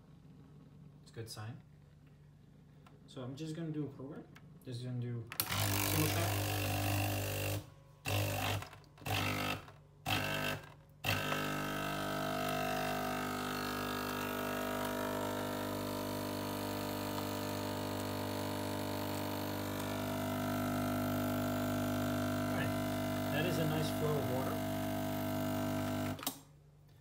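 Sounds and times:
espresso machine pump humming: 5.4s - 26.3s.

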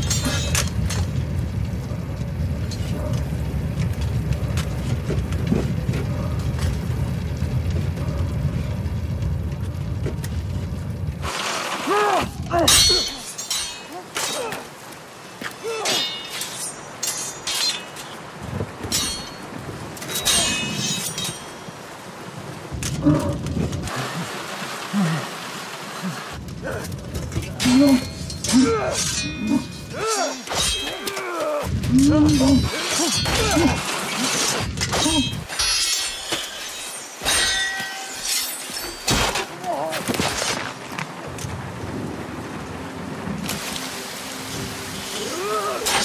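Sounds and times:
rain hissing: 0.0s - 46.0s
low rumble: 0.1s - 11.3s
steel swords clanging: 12.7s - 14.7s, 15.6s - 18.3s, 18.9s - 21.6s, 27.6s - 31.4s, 32.1s - 39.5s
men grunting and growling: 26.0s - 35.4s, 45.2s - 46.0s.

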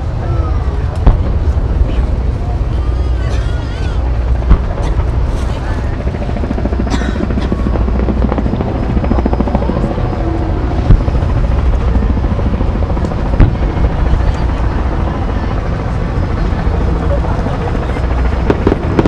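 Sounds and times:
low rumble: 0.0s - 17.2s
fireworks bangs: 1.0s - 2.1s, 4.4s - 4.8s, 10.8s - 11.8s, 13.3s - 14.4s, 18.4s - 19.0s.

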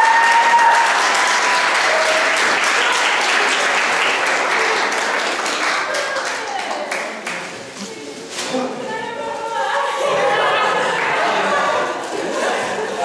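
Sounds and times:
crowd applauding: 0.0s - 7.7s, 10.6s - 13.0s.

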